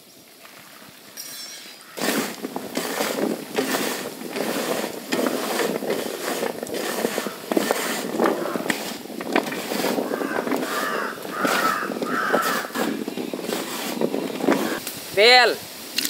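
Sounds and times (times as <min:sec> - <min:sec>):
vegetable pieces scraping steel pan: 0:02.0 - 0:14.8.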